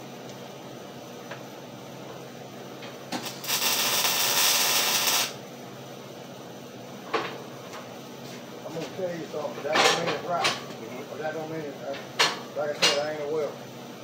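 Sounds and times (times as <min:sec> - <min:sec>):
welding arc hiss: 0:03.1 - 0:05.4.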